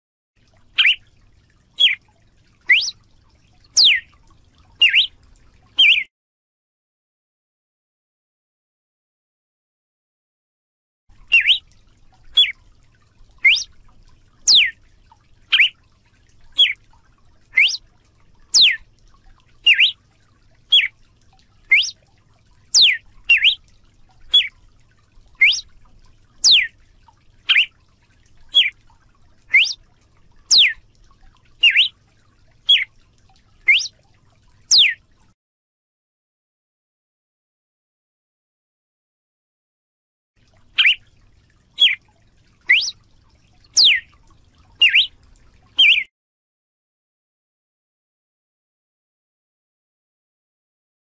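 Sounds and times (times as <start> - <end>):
bird singing whistled notes: 0.8 - 1.0, 1.8 - 2.0, 2.7 - 3.0, 3.8 - 4.1, 4.8 - 5.2, 5.8 - 6.1, 11.3 - 11.6, 13.4 - 13.7, 14.5 - 14.7, 15.5 - 15.8, 16.6 - 16.8, 17.6 - 17.8, 18.5 - 18.8, 19.6 - 20.0, 20.7 - 20.9, 21.7 - 22.0, 22.7 - 23.6, 24.3 - 24.5, 25.4 - 25.7, 26.4 - 26.7, 27.5 - 27.7, 28.5 - 28.7, 29.5 - 29.8, 30.5 - 30.8, 31.6 - 31.9, 32.7 - 32.9, 33.7 - 33.9, 34.7 - 35.0, 40.8 - 41.0, 41.8 - 42.0, 42.7 - 43.0, 43.8 - 44.1, 44.8 - 45.1, 45.8 - 46.1.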